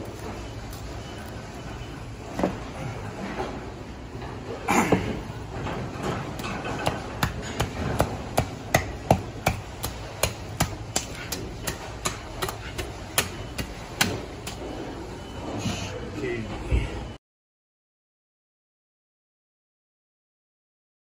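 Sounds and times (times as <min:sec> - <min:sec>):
knife ticking against fish ribs: 0:08.0 - 0:14.6.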